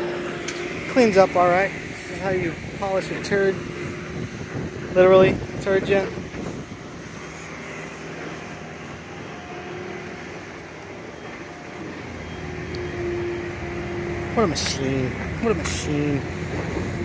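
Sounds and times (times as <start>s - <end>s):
motor hum: 0.0s - 17.0s
faint held tone: 7.4s - 15.6s.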